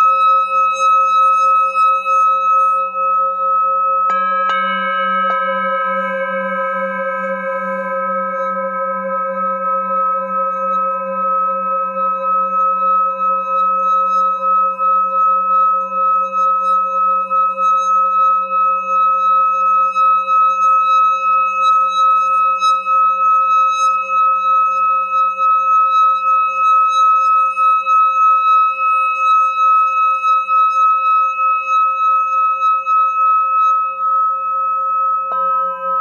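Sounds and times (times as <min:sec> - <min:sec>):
singing bowl strike: 0:00.0 - 0:22.1, 0:32.4 - 0:36.0
singing bowl ringing: 0:00.0 - 0:36.0.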